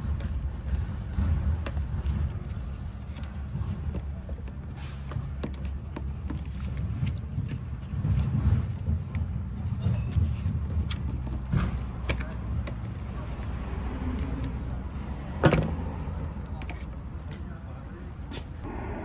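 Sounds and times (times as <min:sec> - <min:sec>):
low background rumble: 0:00.0 - 0:19.0.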